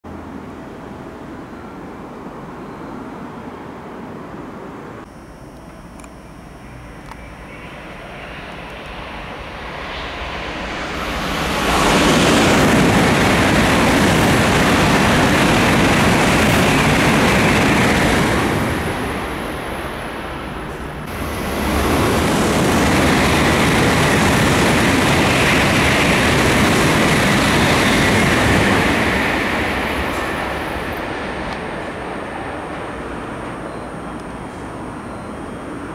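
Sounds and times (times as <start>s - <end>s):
train rushing past: 7.5s - 35.9s.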